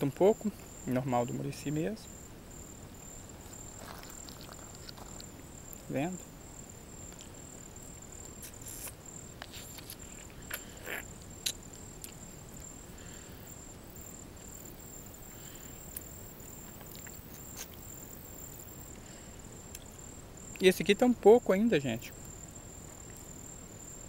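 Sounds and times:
high-pitched insect trill: 0:00.0 - 0:24.0
rustles: 0:00.1 - 0:24.0.

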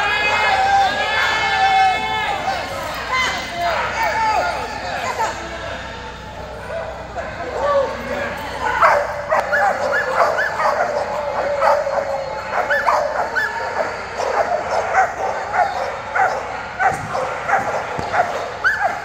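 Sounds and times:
dogs barking and yipping: 0:07.3 - 0:19.0.

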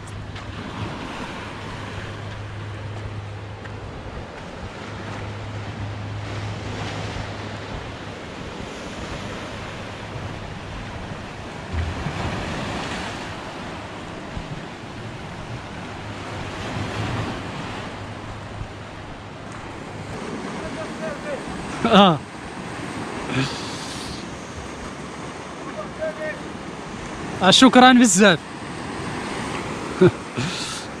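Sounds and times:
wind buffeting microphone: 0:00.0 - 0:20.8
sea surf washing in: 0:00.0 - 0:31.0.

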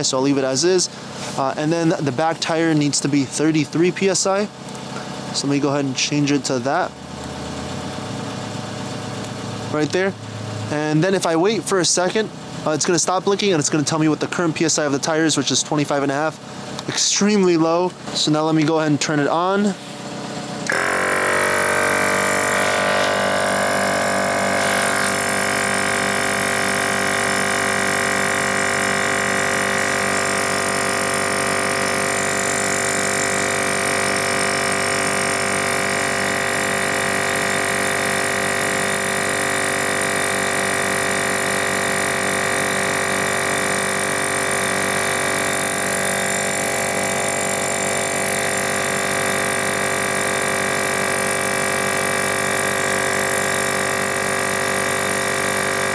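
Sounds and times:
air compressor running: 0:00.0 - 0:55.9.

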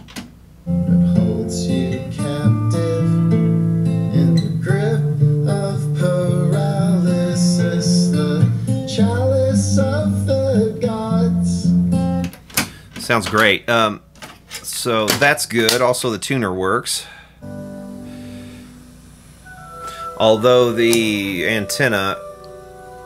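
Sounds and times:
song with strummed acoustic guitar: 0:00.6 - 0:13.6, 0:17.4 - 0:22.2.

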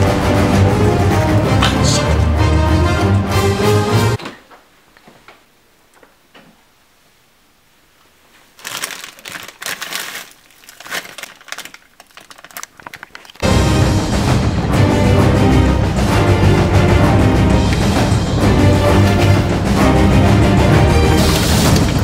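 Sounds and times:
plastic bags crinkling: 0:08.5 - 0:13.4.

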